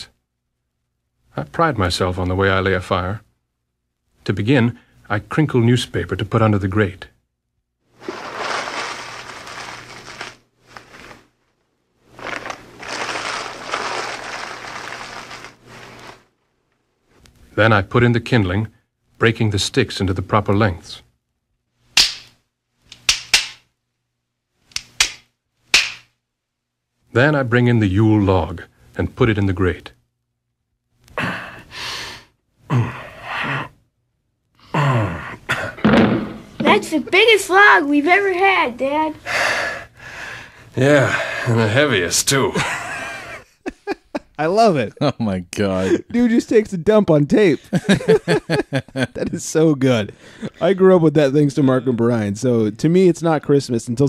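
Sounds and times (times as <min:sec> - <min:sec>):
newspaper crinkling and crumpling: 0:08.0 - 0:11.4, 0:12.1 - 0:16.3
paper rustle: 0:08.0 - 0:11.4, 0:12.1 - 0:16.3
man grunting and exhaling with strain: 0:32.7 - 0:33.8, 0:34.6 - 0:35.8.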